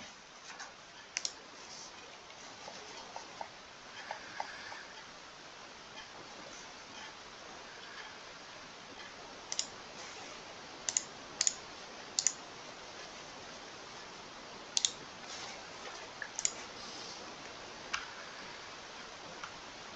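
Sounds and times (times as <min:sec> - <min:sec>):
faint steady hiss: 0:00.0 - 0:19.9.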